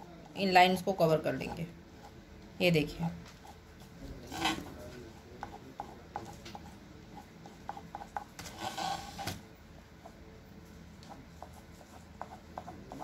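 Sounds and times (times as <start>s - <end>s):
crayon scratching on paper: 3.4s - 9.4s, 11.0s - 13.0s.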